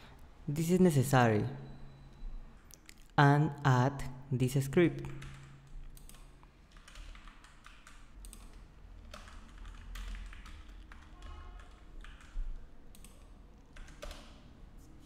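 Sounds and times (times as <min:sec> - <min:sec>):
typing on computer keyboard: 0:05.0 - 0:14.5.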